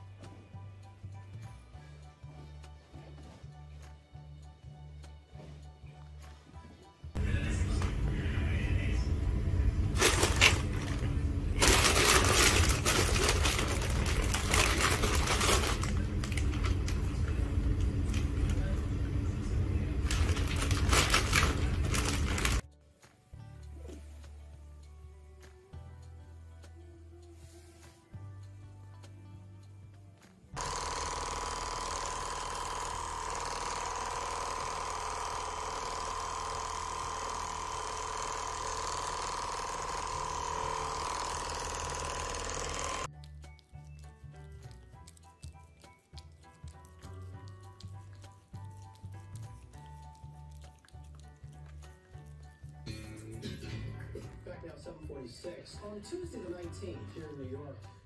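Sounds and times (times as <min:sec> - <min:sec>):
plastic shrink-wrap crinkling: 0:10.0 - 0:17.1, 0:20.0 - 0:22.6
massage gun motor whine: 0:30.6 - 0:43.1.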